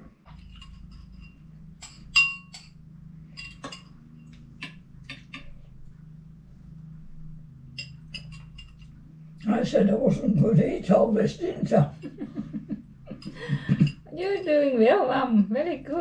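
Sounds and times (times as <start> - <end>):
spoons clinking on ceramic bowls: 0.4 - 4.0, 4.6 - 5.6, 7.8 - 8.9.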